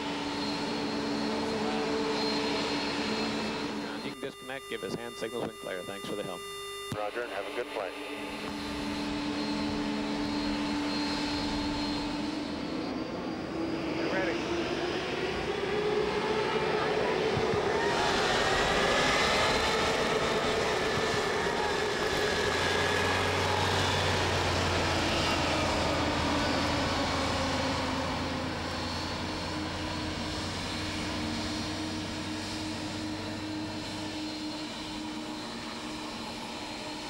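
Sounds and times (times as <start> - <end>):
jet engines rushing with whine: 0.0 - 37.0.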